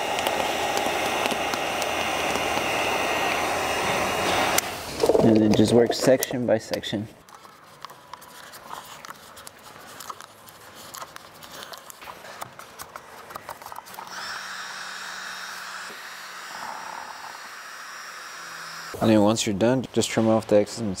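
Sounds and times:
heat gun whirring: 0.0 - 5.2, 13.5 - 19.0
vinyl film crinkling: 7.2 - 14.0.

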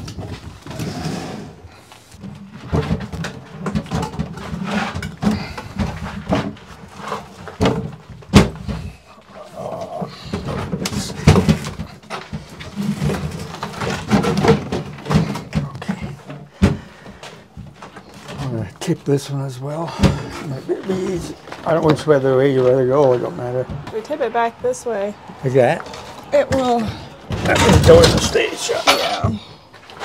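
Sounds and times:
wooden cabinets knocking and bumping: 2.2 - 9.0, 9.9 - 18.5, 19.9 - 24.0, 26.3 - 28.5.

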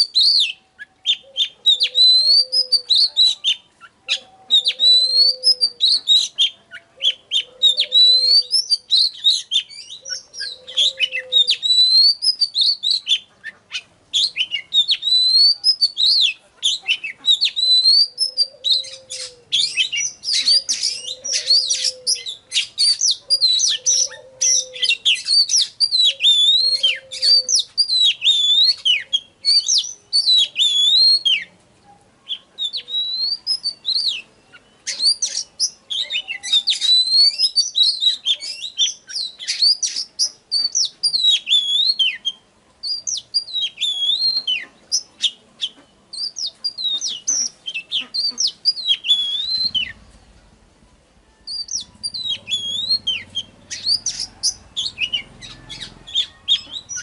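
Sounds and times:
bird singing whistled song: 0.0 - 31.5, 32.3 - 50.2, 51.2 - 57.0
low arched hoot: 1.0 - 3.5, 4.1 - 6.1, 6.8 - 8.7, 10.0 - 12.2, 17.6 - 22.6, 23.2 - 27.7.

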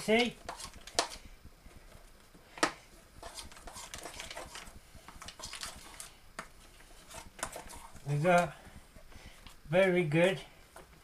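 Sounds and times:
spoon scraping foil tray: 0.0 - 1.3, 3.1 - 8.5.

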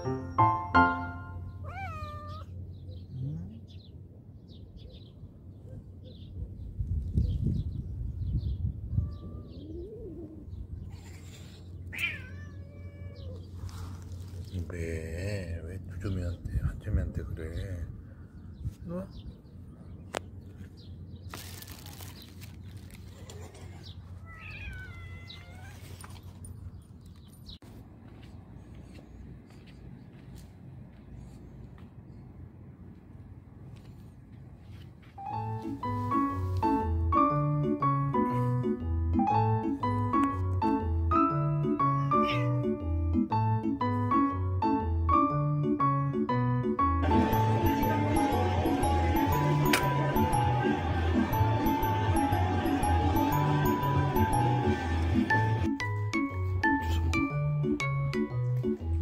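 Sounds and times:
piano notes: 0.0 - 1.6, 35.2 - 59.0
cat meowing: 1.6 - 2.6, 8.9 - 10.2, 11.9 - 13.5, 24.2 - 26.0, 41.7 - 42.7.

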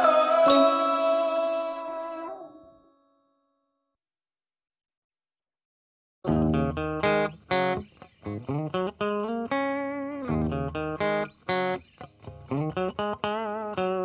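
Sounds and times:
plucked instrumental melody: 6.3 - 7.8.

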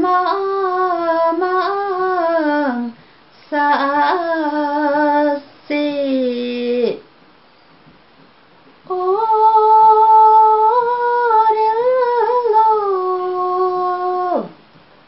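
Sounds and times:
woman singing solo: 0.0 - 7.0, 8.9 - 14.6.

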